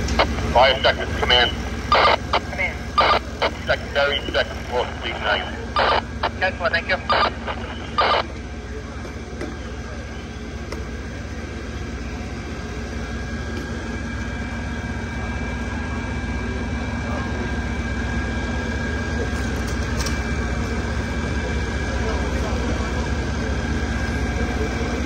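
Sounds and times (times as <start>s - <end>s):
faint high whine: 0.0s - 8.7s
diesel engines droning: 0.0s - 25.0s.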